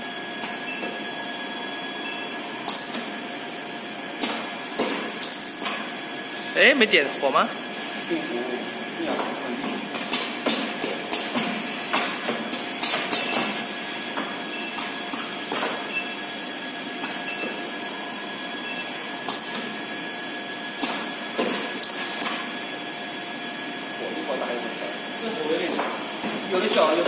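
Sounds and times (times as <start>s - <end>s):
steady machine hum: 0.0s - 27.0s
pneumatic actuator clacks: 2.7s - 3.0s, 9.1s - 13.6s, 20.8s - 22.4s.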